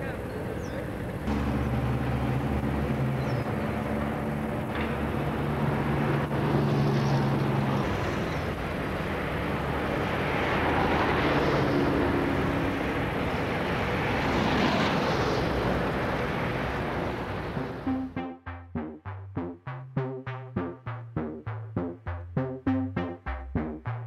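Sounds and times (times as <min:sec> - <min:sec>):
diesel locomotive engine running: 0:00.0 - 0:18.2.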